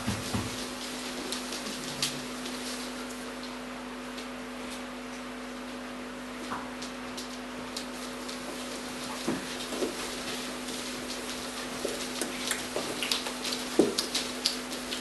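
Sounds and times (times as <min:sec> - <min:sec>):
footsteps on wooden floor: 0:00.0 - 0:01.9, 0:08.4 - 0:14.1.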